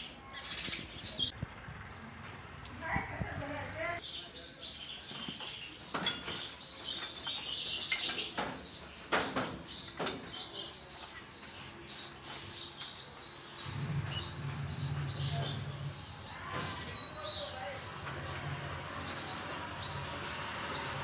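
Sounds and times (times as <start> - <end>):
nest clicks and rustles: 5.0 - 21.0.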